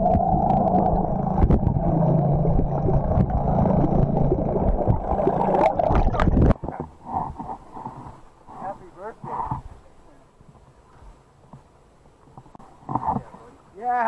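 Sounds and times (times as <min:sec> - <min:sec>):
underwater churning and gurgling: 0:00.0 - 0:09.8.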